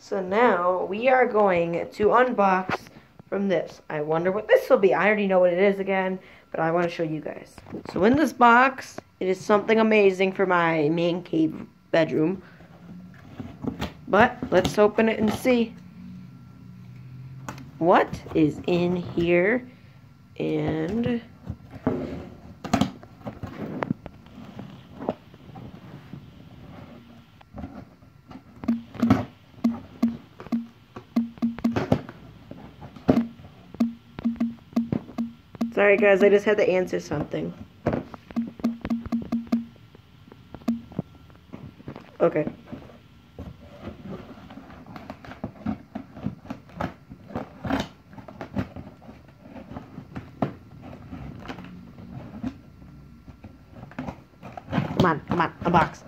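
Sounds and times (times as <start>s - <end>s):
scattered clicks: 38.3s - 39.7s.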